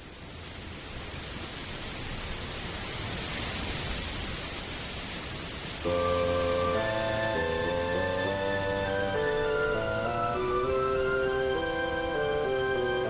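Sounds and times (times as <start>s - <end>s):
steady rushing hiss: 0.0s - 13.0s
music with held chords: 5.9s - 13.0s.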